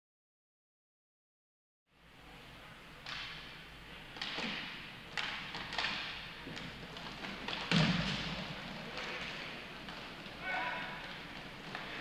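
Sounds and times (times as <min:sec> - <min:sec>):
hockey sticks and puck knocking: 0:04.1 - 0:12.0.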